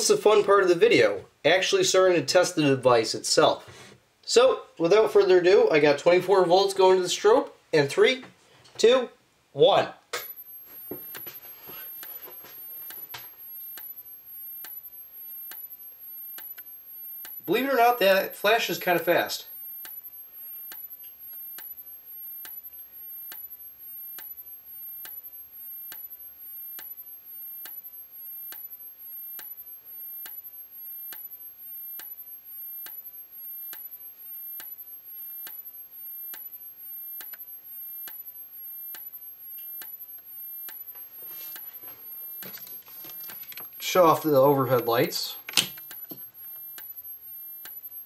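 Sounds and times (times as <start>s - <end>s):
high-pitched charging whine: 10.2s - 48.0s
strobe clicking: 10.2s - 48.0s.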